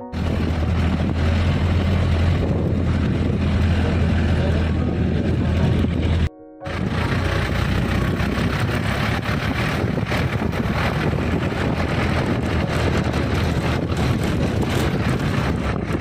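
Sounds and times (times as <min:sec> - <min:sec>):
off-road vehicle engine: 0:00.0 - 0:16.0
wind buffeting microphone: 0:00.0 - 0:16.0
knocks and rattles: 0:06.8 - 0:16.0.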